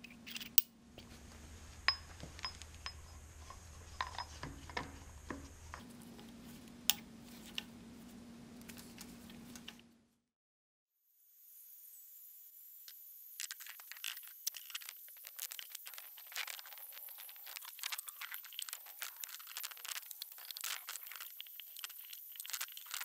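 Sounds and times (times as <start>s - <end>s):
metal parts shifting: 0.0s - 0.7s.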